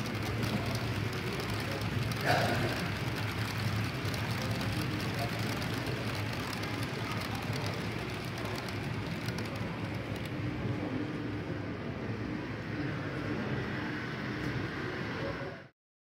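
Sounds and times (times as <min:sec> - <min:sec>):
wheels clicking over rail joints: 0:00.0 - 0:10.4
model train motors rumbling: 0:00.0 - 0:15.6.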